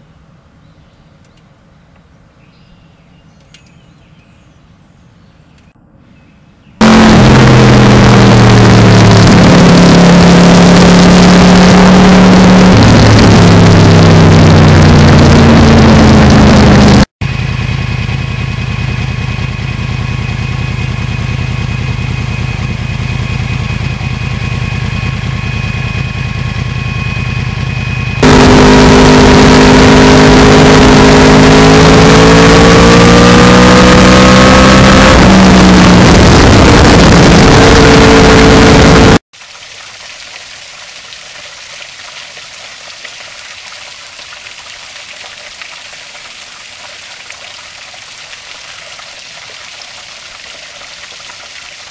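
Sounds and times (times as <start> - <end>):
motorcycle engine revving: 6.8 - 39.2
motorcycle engine idling: 17.2 - 29.5.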